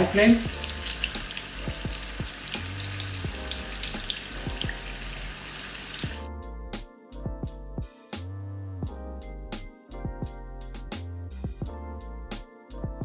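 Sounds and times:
deep-frying sizzle with crackling pops: 0:00.0 - 0:06.2
background music: 0:00.0 - 0:13.0.

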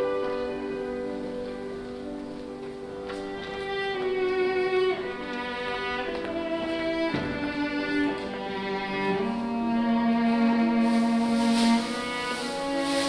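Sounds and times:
bowed strings sustained notes: 0:00.0 - 0:13.0.

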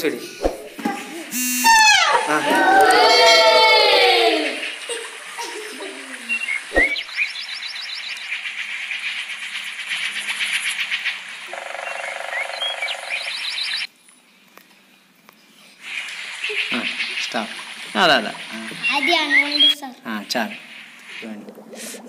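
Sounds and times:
falling pitched cry: 0:01.3 - 0:04.9
fast fluttering buzz: 0:06.6 - 0:13.9.

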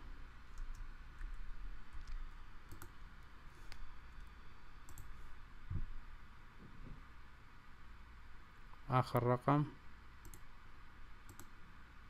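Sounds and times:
low background hum: 0:00.0 - 0:12.0
computer mouse clicks: 0:00.5 - 0:05.2, 0:10.2 - 0:10.5, 0:11.2 - 0:11.6.

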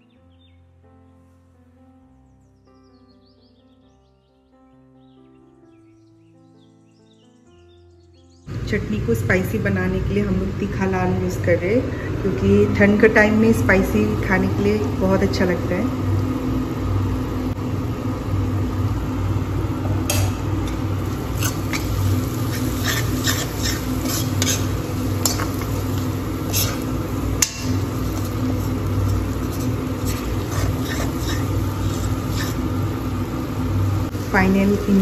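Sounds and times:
low hum: 0:08.5 - 0:35.0
metal spoon scraping a pan: 0:20.1 - 0:33.0.

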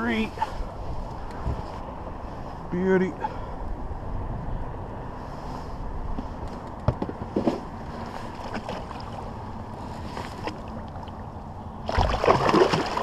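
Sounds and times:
water lapping against boat: 0:08.0 - 0:13.0
loud fish splash: 0:11.8 - 0:13.0.

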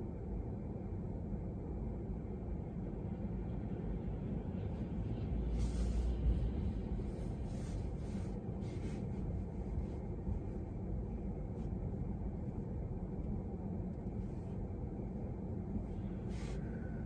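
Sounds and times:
car cabin rumble: 0:04.7 - 0:17.0.

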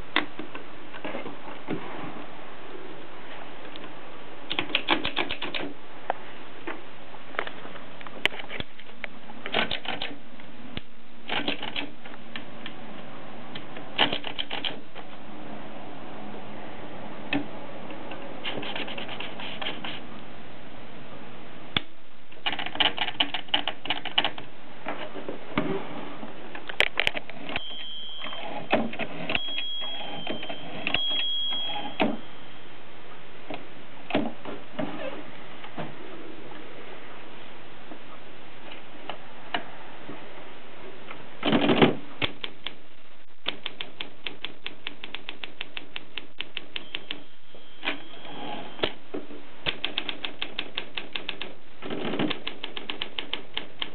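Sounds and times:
typewriter clicks and ratcheting: 0:04.5 - 0:05.7, 0:09.5 - 0:10.2, 0:11.3 - 0:11.9, 0:14.0 - 0:14.8, 0:18.4 - 0:20.0, 0:22.4 - 0:24.4, 0:49.6 - 0:53.9
brief high tones: 0:27.6 - 0:28.7, 0:29.4 - 0:32.7.

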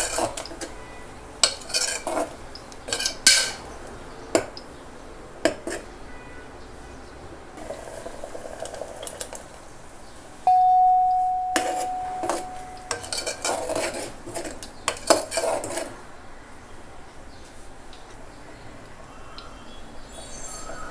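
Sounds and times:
spoon clinking and scraping pot: 0:00.0 - 0:00.7, 0:01.4 - 0:03.7, 0:11.2 - 0:16.0
spoon striking ringing pot: 0:10.5 - 0:13.2.

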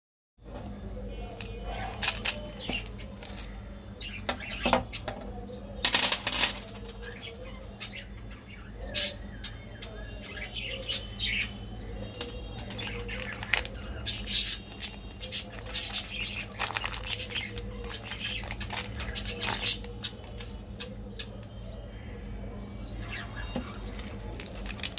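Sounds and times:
low steady hum: 0:00.4 - 0:24.9
candy wrappers crinkling: 0:01.3 - 0:03.7, 0:12.2 - 0:20.5, 0:23.8 - 0:24.9
wrapper tearing open: 0:01.9 - 0:02.4, 0:12.8 - 0:13.8, 0:15.5 - 0:19.9, 0:23.9 - 0:24.9.

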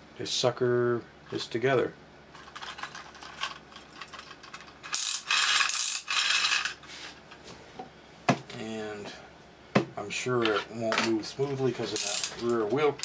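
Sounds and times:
wind-up toy ratchet clicking: 0:04.8 - 0:06.8.

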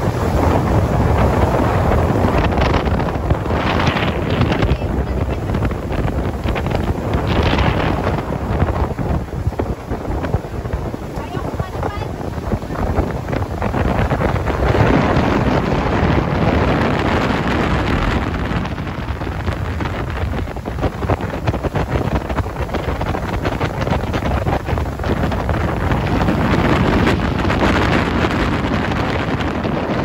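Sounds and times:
boat motor and hull rushing: 0:00.0 - 0:30.0
wind buffeting microphone: 0:00.0 - 0:30.0.

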